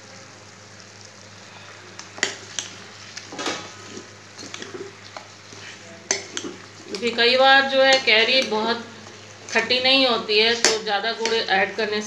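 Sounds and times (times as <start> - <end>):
faint sizzle of cooking: 0.0 - 12.0
metal spoon scraping pan: 3.3 - 8.7.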